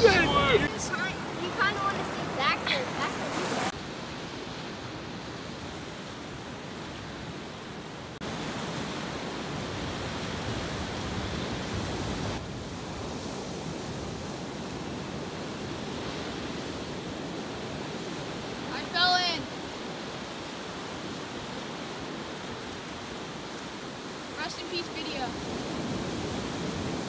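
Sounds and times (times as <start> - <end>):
ocean surf breaking on rocks: 0.0 - 27.0.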